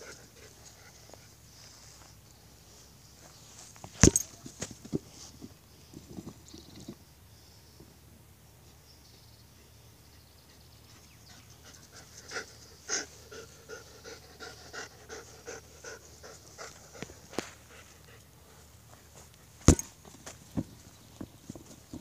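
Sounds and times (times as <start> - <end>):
dog panting hard: 11.4 - 18.6.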